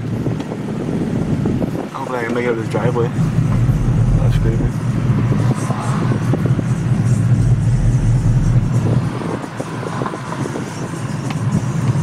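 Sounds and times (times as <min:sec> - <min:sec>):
truck engine running low: 0:03.0 - 0:12.0.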